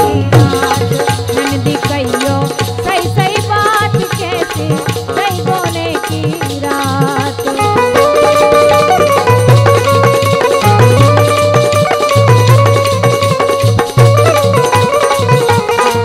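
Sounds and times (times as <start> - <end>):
wavering melodic lead line: 0.0 - 2.2, 7.5 - 16.0
hand drum rhythm: 0.0 - 16.0
jingling rattle percussion: 0.0 - 16.0.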